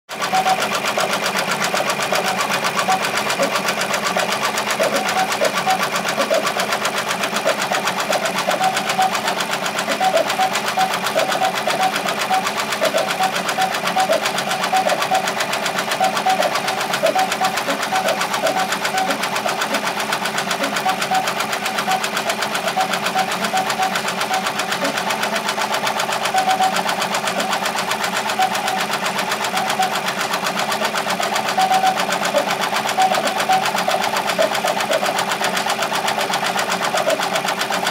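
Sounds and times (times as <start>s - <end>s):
embroidery machine stitching: 0.1s - 37.9s.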